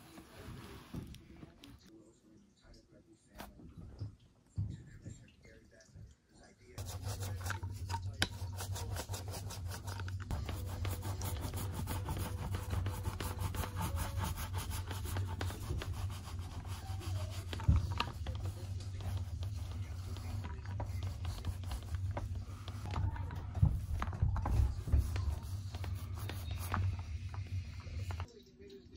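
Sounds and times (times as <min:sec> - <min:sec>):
foam paint roller rasping: 0:06.8 - 0:28.3.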